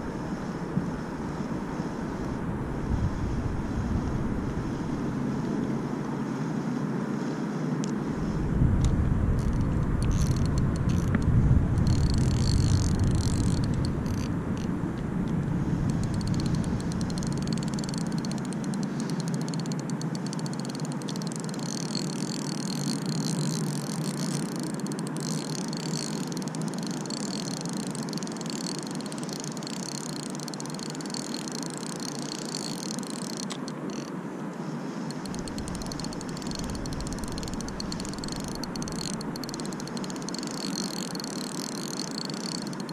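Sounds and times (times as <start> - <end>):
wind on microphone: 0.0 - 5.9, 8.0 - 18.5, 35.2 - 40.6
distant traffic hum: 0.0 - 42.9
fishing reel whirring: 7.8 - 34.2, 34.9 - 42.9.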